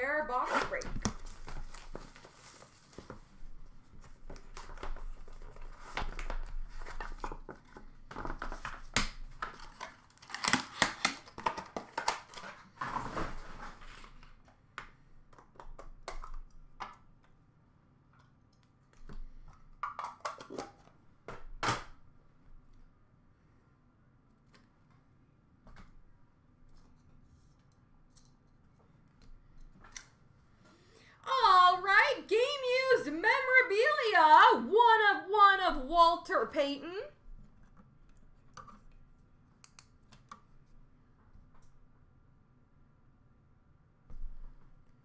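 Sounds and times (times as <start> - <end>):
card packs rustling: 0.4 - 3.4
cardboard tearing: 9.7 - 14.2.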